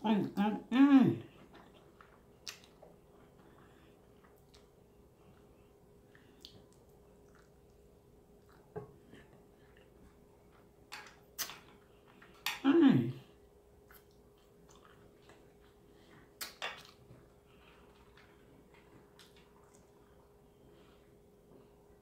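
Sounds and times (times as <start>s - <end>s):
wet lip smacks and clicks: 2.4s - 3.0s, 6.1s - 7.8s, 11.0s - 11.7s, 16.4s - 17.0s.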